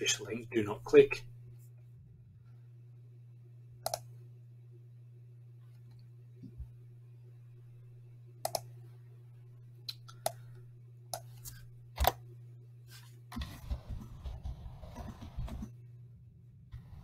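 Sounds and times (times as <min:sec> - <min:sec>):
low steady hum: 0:00.0 - 0:17.0
mouse and keyboard clicks: 0:03.8 - 0:04.1, 0:08.5 - 0:08.7.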